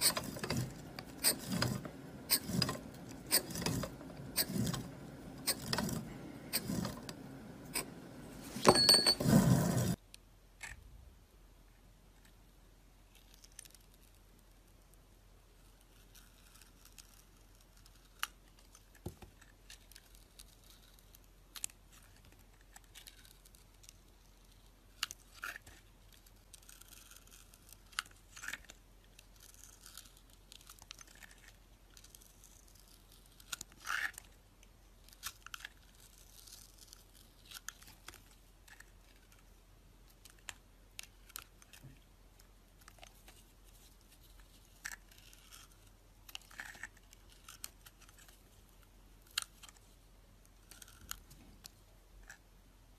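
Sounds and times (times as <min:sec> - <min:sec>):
knife scraping soap: 0:00.0 - 0:10.0, 0:15.7 - 0:34.4, 0:35.1 - 0:39.5, 0:44.3 - 0:48.4, 0:50.6 - 0:51.2.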